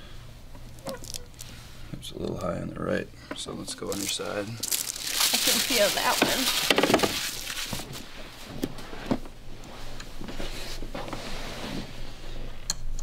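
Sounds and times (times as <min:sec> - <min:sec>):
clothing and padding rustling: 0:03.8 - 0:12.2.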